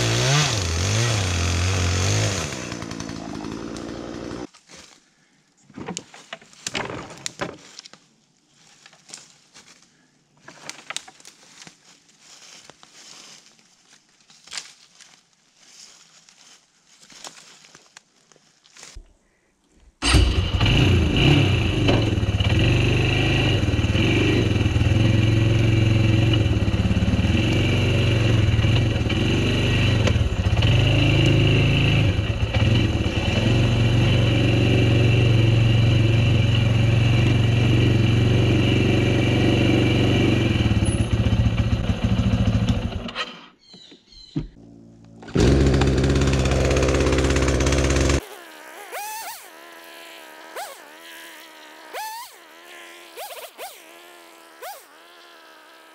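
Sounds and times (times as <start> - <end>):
atv engine running: 0.0 - 4.5, 20.0 - 43.2, 44.6 - 55.8
steady engine sound: 20.0 - 43.1, 44.6 - 48.2.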